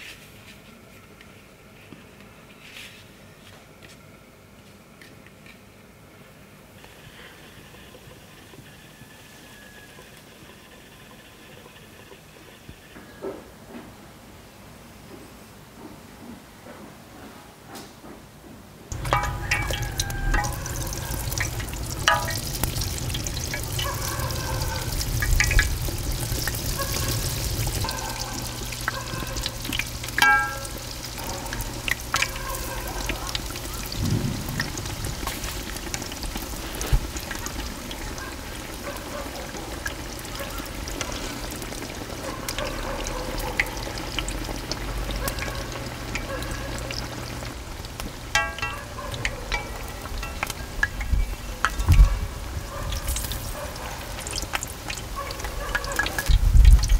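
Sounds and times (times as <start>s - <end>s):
low steady rumble: 18.9s - 32.4s, 33.0s - 36.4s
oil bubbling and sizzling: 18.9s - 56.9s.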